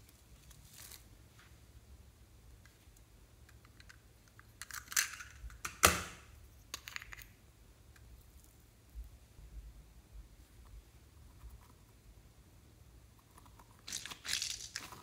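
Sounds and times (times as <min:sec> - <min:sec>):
small items rustling and clicking: 0:13.8 - 0:15.0.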